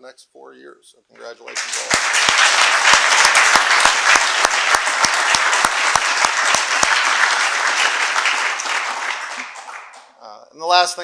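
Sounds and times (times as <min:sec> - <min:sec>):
audience applauding: 0:01.2 - 0:10.2
close single person clapping: 0:01.5 - 0:10.1.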